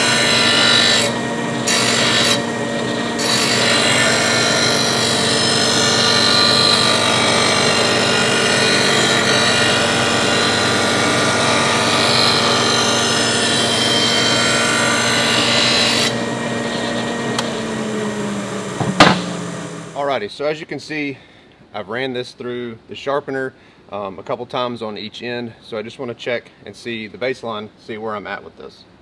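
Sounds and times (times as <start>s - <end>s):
grinder rasping on metal blade: 0.0s - 17.6s
grinder motor hum: 0.0s - 20.0s.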